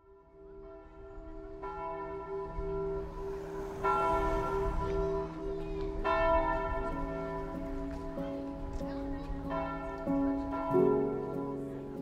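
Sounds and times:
church bells tolling: 0.0s - 12.0s.

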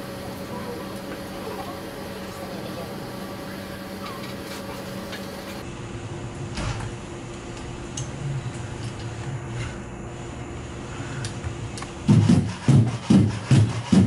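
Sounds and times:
robot motors humming: 0.0s - 5.6s.

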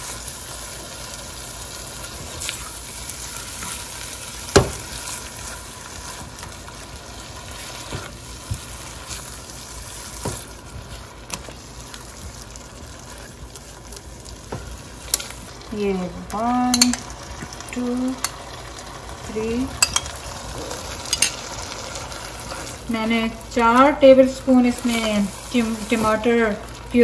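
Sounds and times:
masala sizzling in a frying pan: 0.0s - 27.0s
spatula stirring and scraping: 1.8s - 15.6s, 19.8s - 27.0s.

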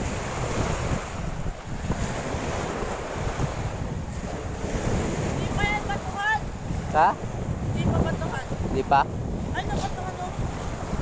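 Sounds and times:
sea waves breaking on shore: 0.0s - 11.0s
wind buffeting microphone: 0.0s - 11.0s.

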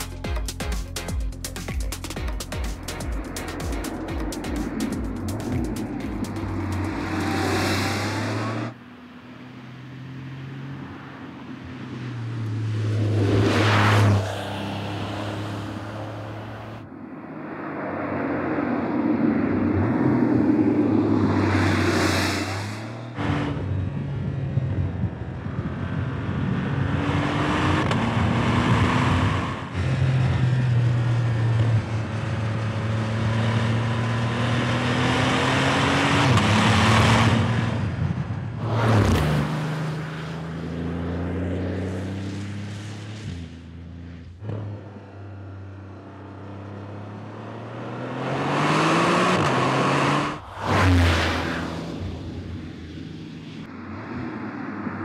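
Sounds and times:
car engine revving: 2.8s - 16.8s, 46.4s - 53.7s.

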